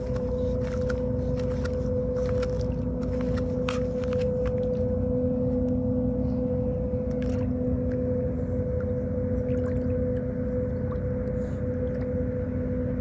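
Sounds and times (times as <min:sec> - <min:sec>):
clog footsteps on concrete: 0:00.0 - 0:04.7
machine hum: 0:00.0 - 0:13.0.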